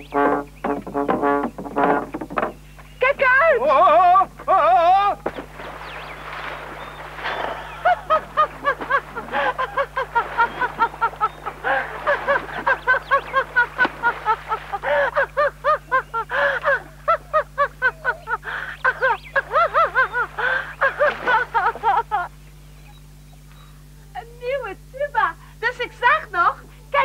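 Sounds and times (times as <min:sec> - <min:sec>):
woman laughing hard: 0:07.4 - 0:22.3.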